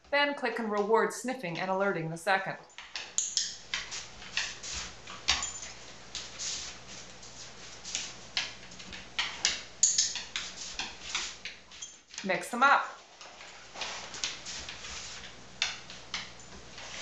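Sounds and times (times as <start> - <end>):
dog claws tapping on vinyl floor: 2.8 - 12.3, 13.2 - 17.0.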